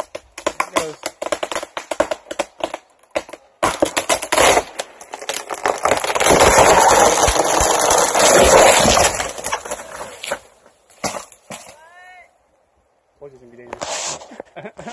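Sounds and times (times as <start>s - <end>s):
tree trunk splintering and tearing: 0.0s - 11.8s
wood cracking sharply: 0.0s - 11.9s.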